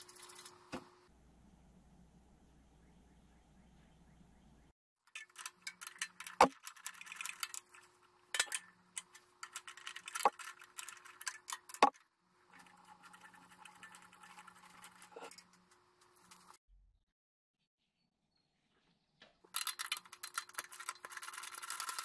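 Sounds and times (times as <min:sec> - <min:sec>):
soft steady scratching: 0:00.0 - 0:01.0, 0:05.2 - 0:16.6, 0:20.0 - 0:22.0
hand tool clicking and scraping: 0:05.1 - 0:16.6.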